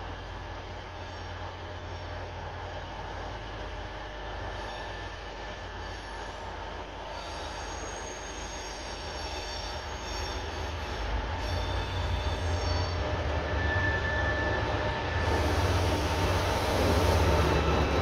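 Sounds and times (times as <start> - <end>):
low train rumble: 0.0 - 18.0
train wheels squealing on rails: 4.0 - 18.0.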